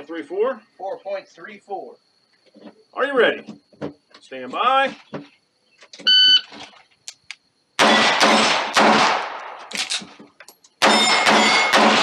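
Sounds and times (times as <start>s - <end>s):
pistol shots: 7.8s - 10.0s, 10.8s - 12.0s
steel targets ringing: 10.8s - 12.0s.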